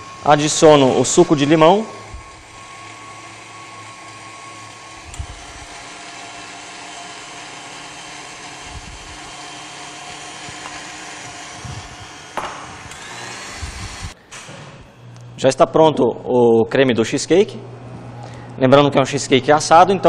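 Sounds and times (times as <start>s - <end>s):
stand mixer whisking batter: 0.0s - 14.2s.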